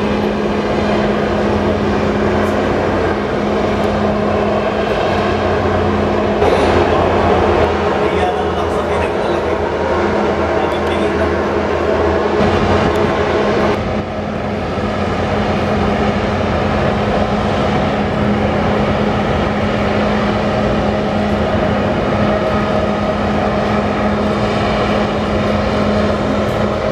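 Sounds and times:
boat engines droning: 0.0s - 26.9s
water rushing from wake: 0.0s - 26.9s.

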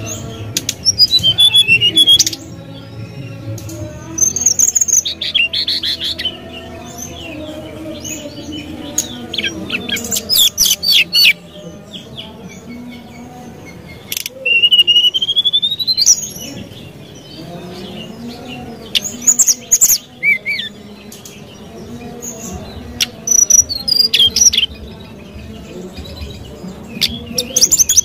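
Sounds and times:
bird chattering trills: 0.0s - 2.6s, 8.1s - 11.9s, 12.6s - 25.0s
soft bird twittering: 0.0s - 28.0s
bird whistling notes: 0.9s - 2.4s.

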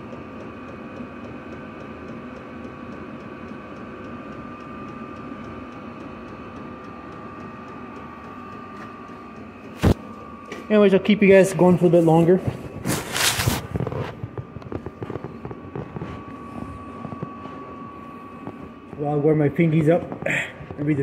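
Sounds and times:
heater fan whirring with whine: 0.0s - 21.0s.

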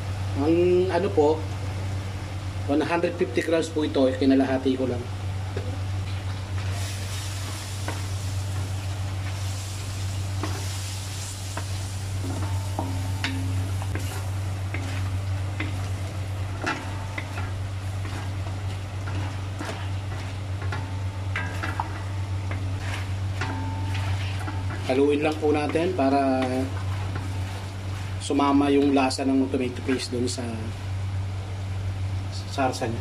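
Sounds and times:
steady low hum: 0.0s - 33.0s
food sizzling in a pan: 6.6s - 22.0s
spatula scraping and tapping pan: 11.5s - 16.0s.

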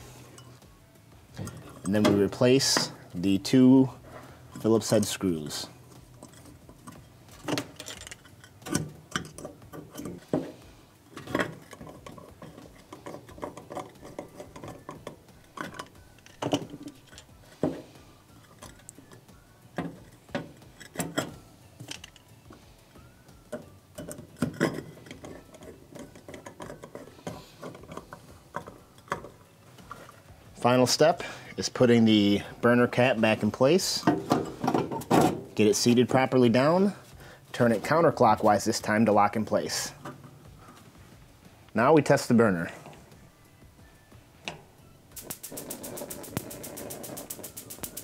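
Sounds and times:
small metallic clicks and knocks: 5.9s - 22.6s, 23.5s - 30.2s, 44.4s - 48.0s
screwdriver turning screws: 45.2s - 48.0s.

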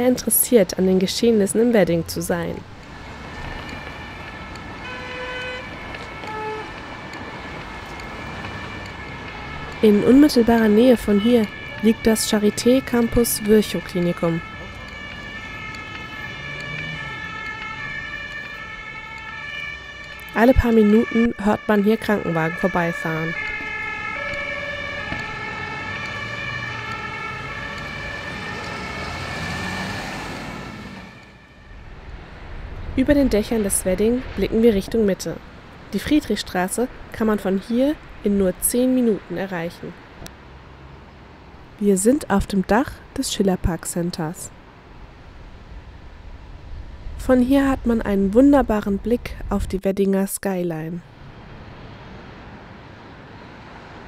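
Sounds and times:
road traffic: 0.0s - 54.0s
two-tone emergency siren: 3.1s - 32.1s
car horn toots: 3.7s - 6.7s.

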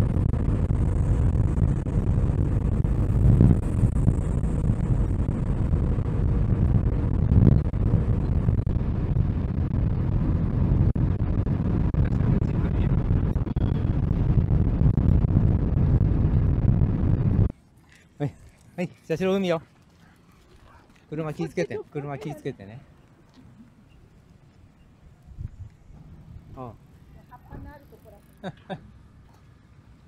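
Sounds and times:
car engine and road rumble: 0.0s - 21.2s.

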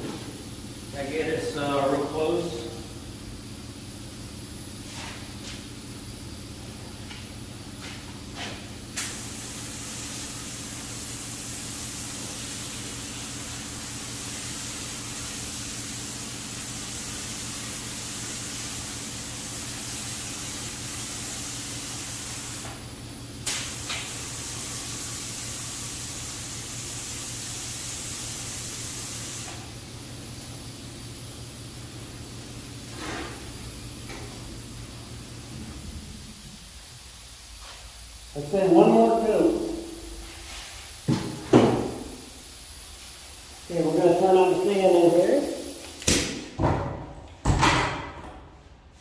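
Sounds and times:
steady low hum: 0.0s - 28.2s
paint spray gun hissing: 0.1s - 46.6s.

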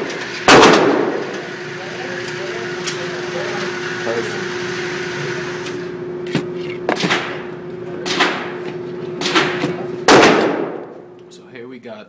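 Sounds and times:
steady hum: 0.0s - 12.0s
pistol shots ringing indoors: 0.4s - 1.3s, 8.0s - 8.5s, 9.2s - 10.9s.

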